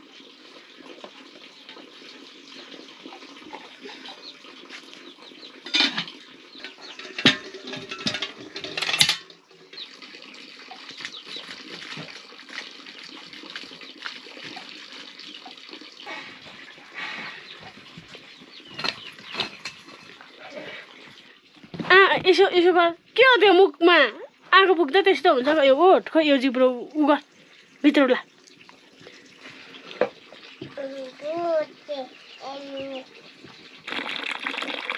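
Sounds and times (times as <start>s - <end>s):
metal clanking on stone: 5.6s - 9.4s, 18.7s - 19.8s.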